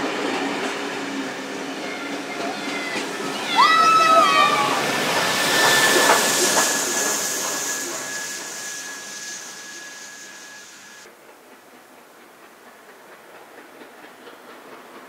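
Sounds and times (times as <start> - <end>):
steam locomotive hissing: 0.0 - 15.0
thin high tone: 1.7 - 11.1.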